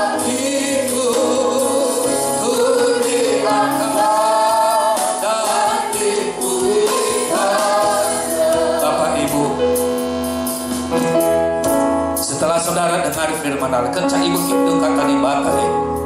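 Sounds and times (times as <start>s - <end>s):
group singing a gospel song: 0.0s - 9.6s
amplified instrumental backing: 0.0s - 16.0s.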